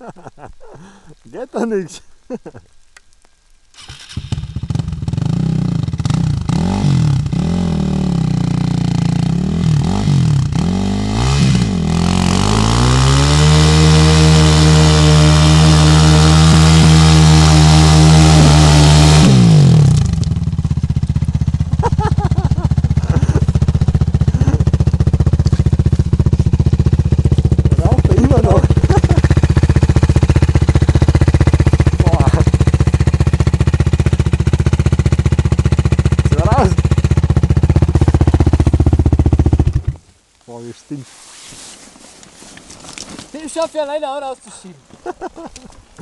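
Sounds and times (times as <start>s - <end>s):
quad engine revving and idling: 3.8s - 40.0s.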